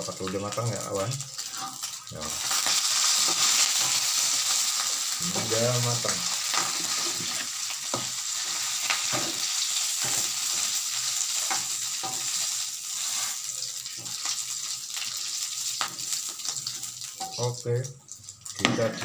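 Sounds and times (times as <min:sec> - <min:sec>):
beef sizzling in oil: 0:00.0 - 0:19.0
spatula scraping a wok: 0:06.4 - 0:14.4.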